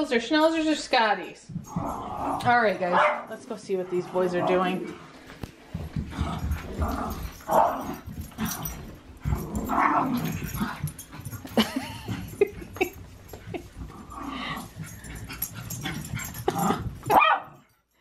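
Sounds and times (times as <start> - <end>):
dogs play growling: 1.5 - 17.7
dog yipping: 17.1 - 17.6.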